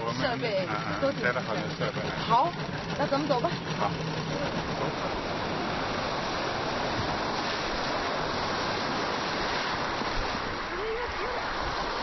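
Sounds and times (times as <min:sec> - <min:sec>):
steady rushing noise: 0:00.0 - 0:12.0.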